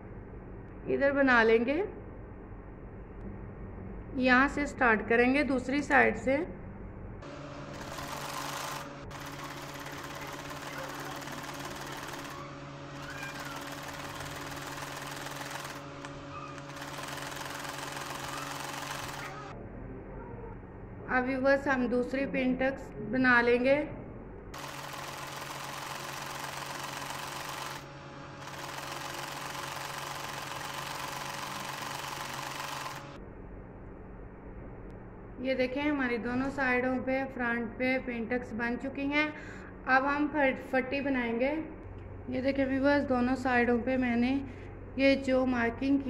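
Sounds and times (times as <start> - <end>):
sewing machine running: 7.7 - 19.5, 24.6 - 33.2.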